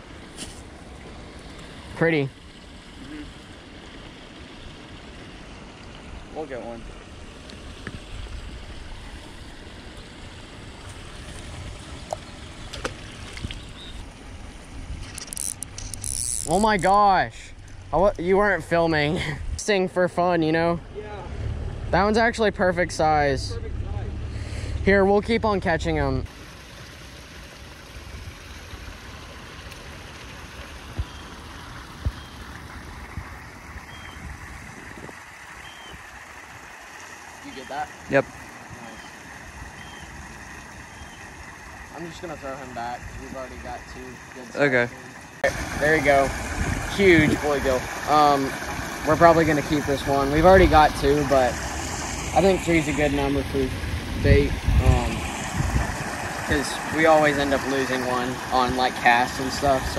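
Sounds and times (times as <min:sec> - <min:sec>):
creek water flowing: 0:00.0 - 0:59.9
wind rumbling on microphone: 0:10.6 - 0:16.9, 0:32.0 - 0:36.1, 0:45.5 - 0:57.7.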